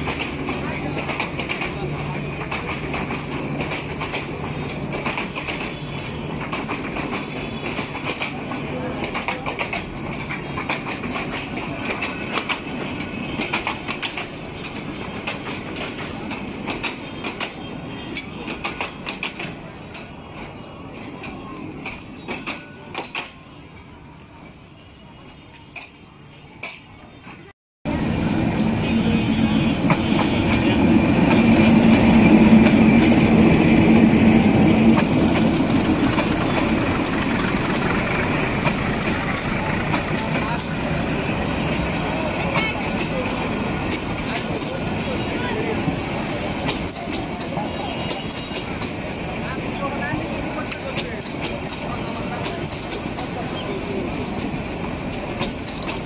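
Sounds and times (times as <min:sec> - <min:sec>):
train wheels clicking over rail joints: 0:00.0 - 0:20.5, 0:21.1 - 0:23.4, 0:28.6 - 0:45.0, 0:45.8 - 0:56.0
train rumble: 0:00.0 - 0:56.0
diesel locomotive engine drone: 0:23.9 - 0:56.0.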